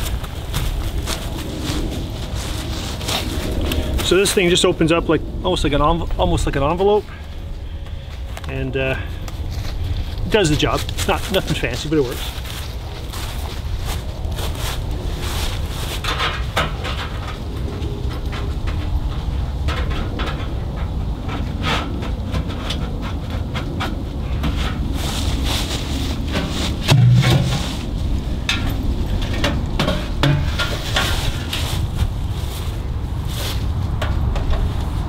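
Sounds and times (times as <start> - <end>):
low wind rumble on microphone: 0.0 - 35.0
dull thump: 26.8 - 27.8.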